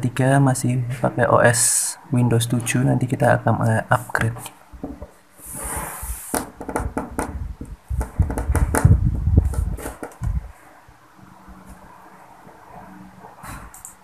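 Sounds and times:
dull low thumps: 6.8 - 10.5.

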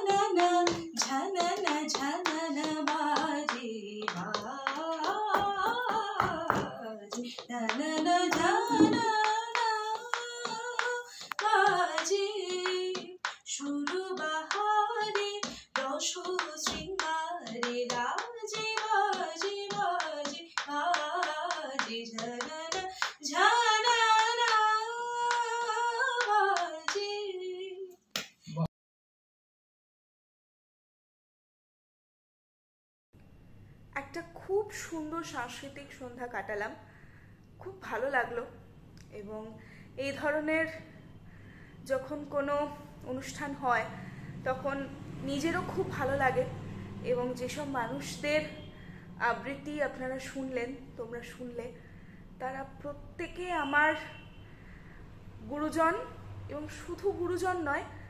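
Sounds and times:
woman singing unaccompanied: 0.0 - 27.9, 39.1 - 40.8, 41.8 - 51.7, 52.4 - 54.1, 55.4 - 57.9
hands clapping: 7.7 - 23.3, 28.2 - 28.4.

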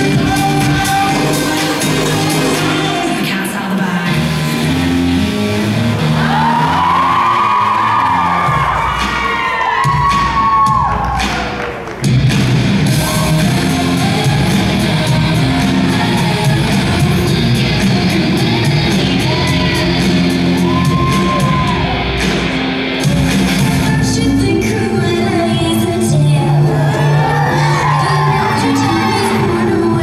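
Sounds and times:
shouted and sung vocals: 0.0 - 5.0, 6.0 - 11.2, 12.9 - 22.2, 23.0 - 30.0
upbeat dance music in arena: 0.0 - 30.0.

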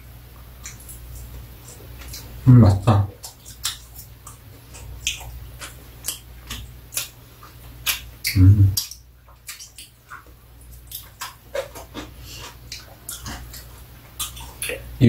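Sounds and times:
murmured voice: 8.4 - 8.8.

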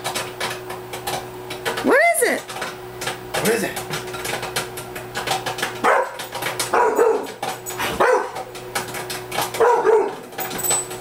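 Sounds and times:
popcorn popping: 0.0 - 11.0
dog barking: 5.8 - 8.4, 9.5 - 10.3.

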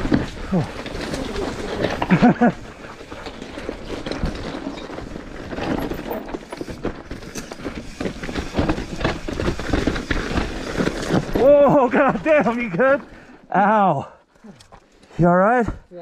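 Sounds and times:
bike knocking and clattering: 0.0 - 13.4
tyres rolling over rocks and gravel: 0.0 - 15.8.

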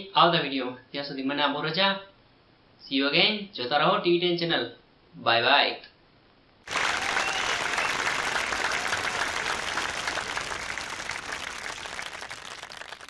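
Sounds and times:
applause: 6.7 - 13.0.

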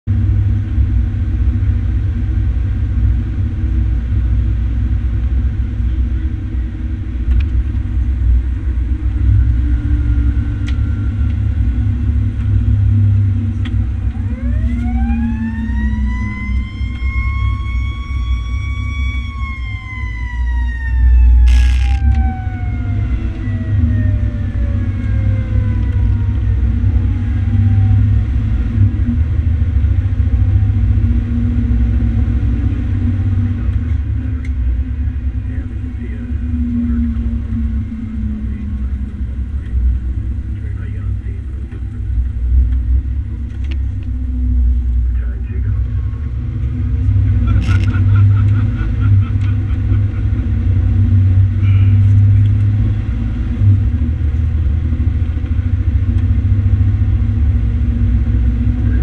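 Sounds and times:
truck engine and road rumble: 0.0 - 59.0
mechanical siren winding: 21.3 - 22.3.

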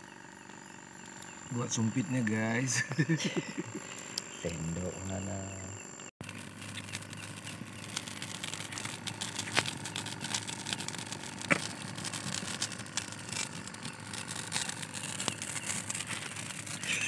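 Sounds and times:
campfire crackling: 0.0 - 5.2, 6.2 - 17.0
sharp fire pops: 7.8 - 13.5.

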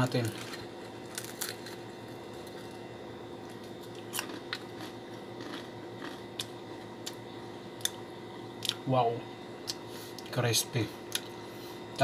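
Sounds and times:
crunching fried chicken: 0.0 - 7.2
steady low hum: 0.0 - 12.0.

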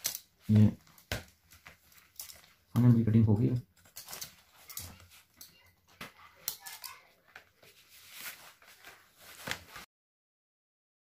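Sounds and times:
stiff paper rustling and crackling: 3.7 - 9.9.

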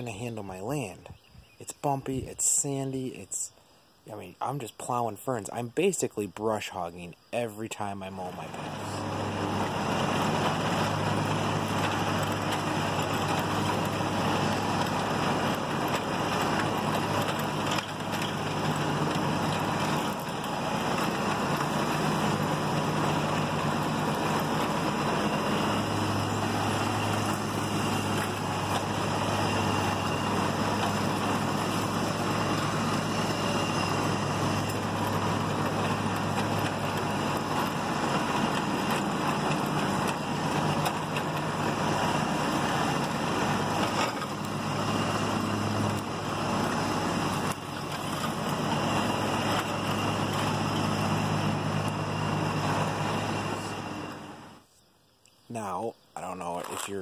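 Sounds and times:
lawn mower engine humming: 0.0 - 54.8.

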